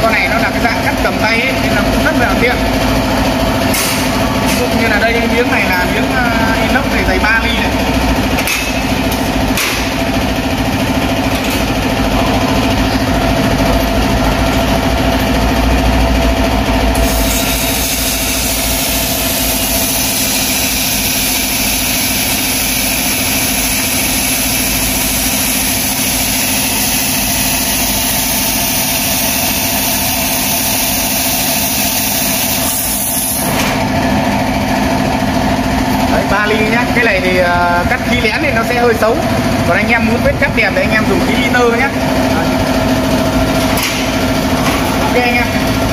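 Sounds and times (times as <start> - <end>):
steady machine hum: 0.0 - 45.9
laser cutter gas hiss: 17.0 - 33.5.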